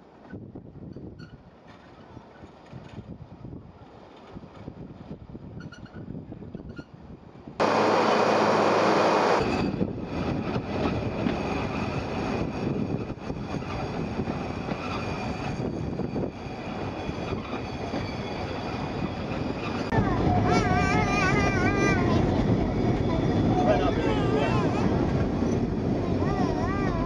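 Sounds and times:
tram wheels clattering on rails: 7.6s - 27.0s.

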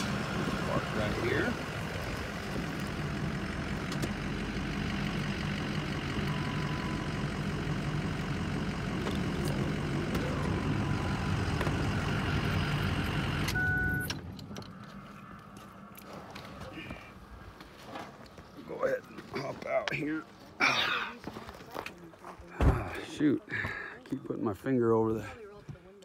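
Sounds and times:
pickup truck engine running: 0.0s - 20.2s
tyres on rough dirt track: 0.0s - 26.0s
short electronic beep: 13.5s - 14.2s.

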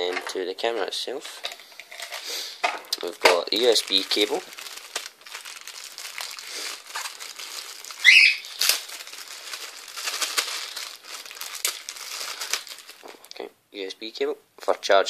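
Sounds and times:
plastic bag crinkling: 0.0s - 13.4s
plastic squeak: 8.0s - 8.7s.

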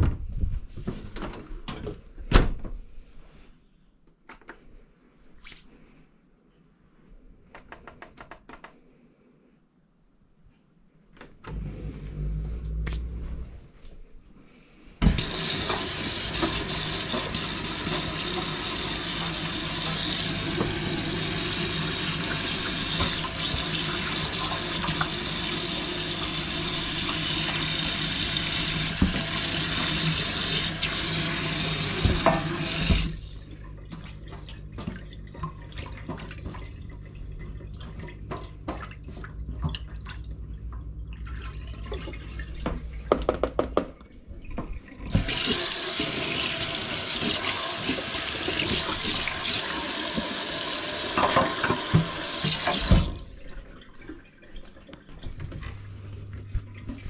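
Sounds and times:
low steady hum: 11.4s - 15.0s, 33.1s - 45.1s
tap running into a steel sink: 31.8s - 33.2s, 51.1s - 53.2s.

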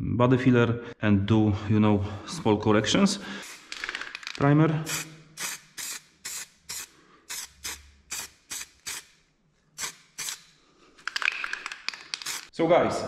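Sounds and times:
spray paint hissing bursts: 3.4s - 3.8s, 4.8s - 9.2s, 9.8s - 10.5s, 12.0s - 12.5s.

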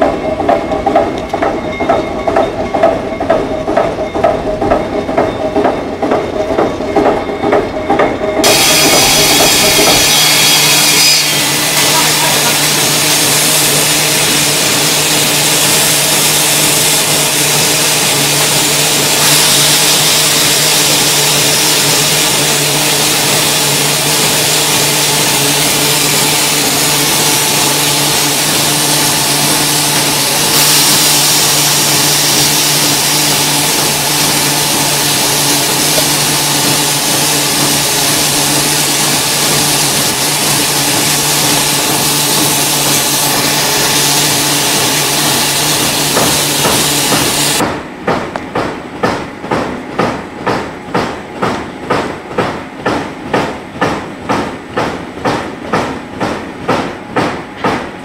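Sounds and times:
pulsing machinery thrum: 0.0s - 57.9s
loud machine drone with hiss: 8.3s - 48.0s.

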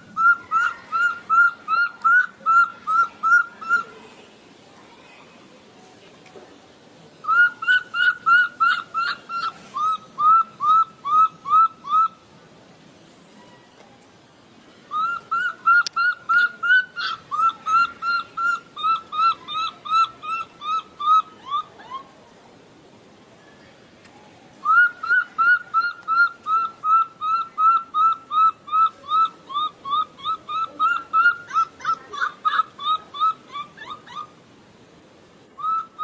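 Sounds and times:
baby monkey distress squeaks: 0.1s - 3.9s, 7.3s - 12.1s, 14.9s - 22.0s, 24.6s - 34.3s, 35.6s - 36.0s.

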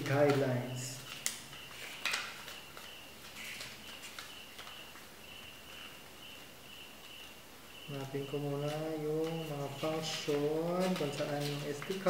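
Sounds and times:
paper pages rustling: 0.0s - 5.9s, 8.4s - 12.0s.

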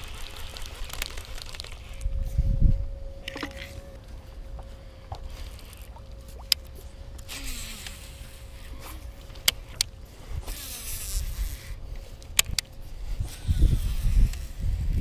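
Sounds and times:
wind rumbling on microphone: 0.0s - 6.5s, 9.7s - 15.0s
faint steady hum: 0.0s - 15.0s.

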